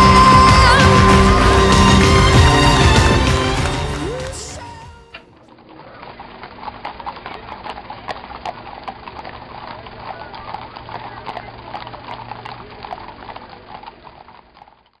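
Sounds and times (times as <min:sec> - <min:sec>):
galloping horse hoofbeats: 0:00.0 - 0:15.0.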